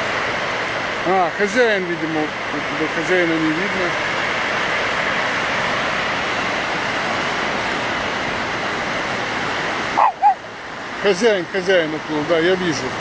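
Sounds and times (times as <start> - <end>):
sea surf breaking on shore: 0.0 - 13.0.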